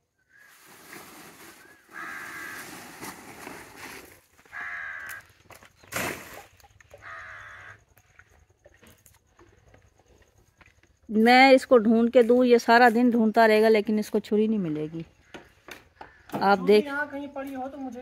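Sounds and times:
crow cawing: 0:01.7 - 0:02.7, 0:04.4 - 0:05.4, 0:07.0 - 0:07.8, 0:15.2 - 0:16.4.

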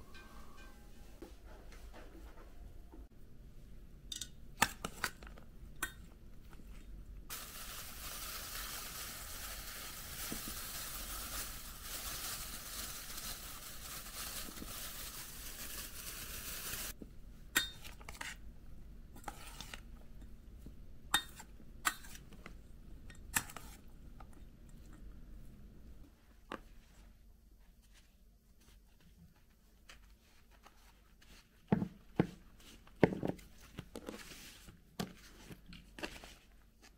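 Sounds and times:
food sizzling in hot oil: 0:07.3 - 0:14.1.

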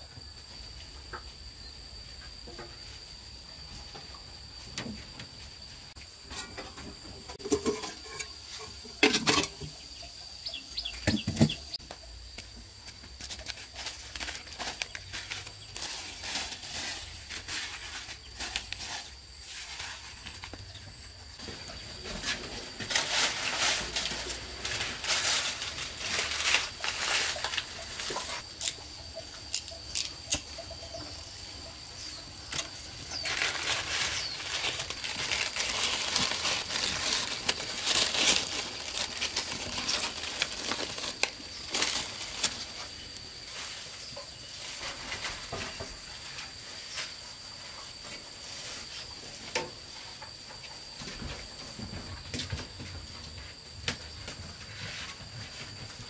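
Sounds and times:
dry corn husks rustling: 0:04.8 - 0:53.0
high-pitched insect drone: 0:22.8 - 0:44.2.

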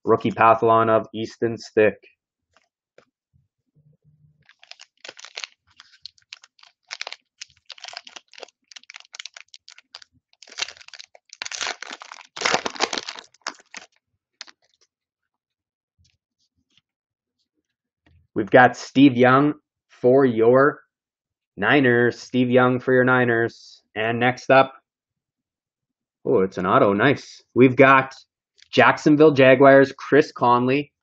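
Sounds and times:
foil wrapper crinkling: 0:04.4 - 0:14.8.

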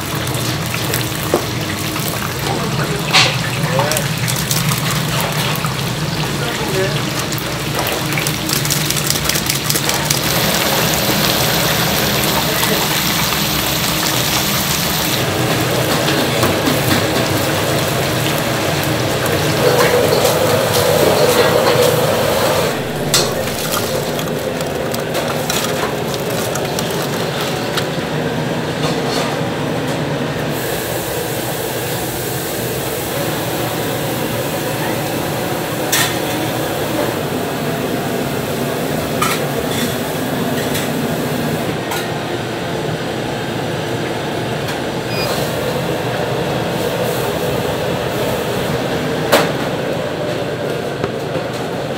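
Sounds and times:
oil sizzling and crackling in fryer: 0:00.0 - 0:29.2, 0:30.5 - 0:41.7.

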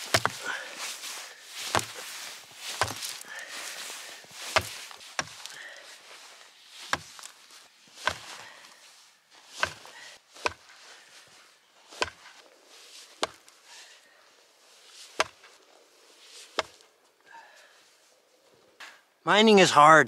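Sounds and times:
hammer striking rock: 0:00.0 - 0:00.4.

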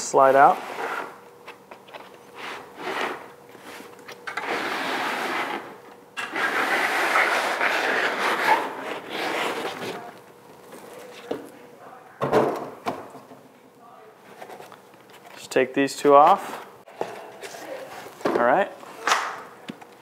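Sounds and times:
foam scraping against cardboard: 0:02.4 - 0:10.1.

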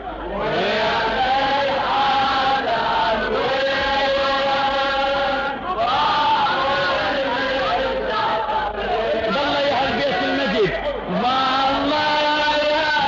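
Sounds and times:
man chanting a lament: 0:06.3 - 0:13.0.

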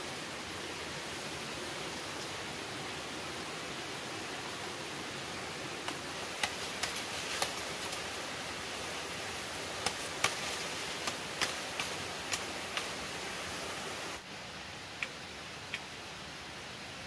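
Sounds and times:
steady hiss: 0:00.0 - 0:17.0
machete chopping bamboo: 0:05.9 - 0:07.6, 0:09.8 - 0:12.9.

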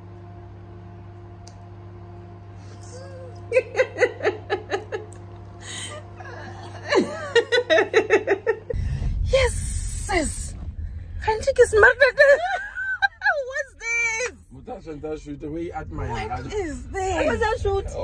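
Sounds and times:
faint steady hum: 0:00.0 - 0:18.0
person laughing: 0:02.8 - 0:08.8, 0:12.0 - 0:13.6.

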